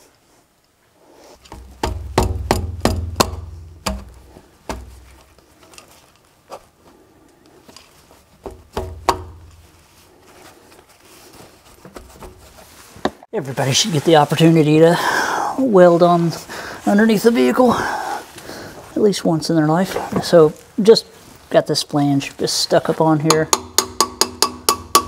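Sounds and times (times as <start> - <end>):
metal knocks and clunks: 1.4 - 5.4, 8.4 - 9.8, 11.8 - 13.2.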